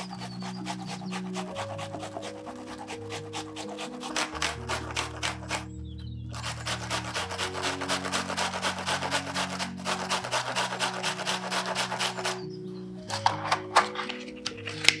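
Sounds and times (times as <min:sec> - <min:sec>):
onion grated on metal grater: 0:00.0 - 0:05.7, 0:06.3 - 0:12.4.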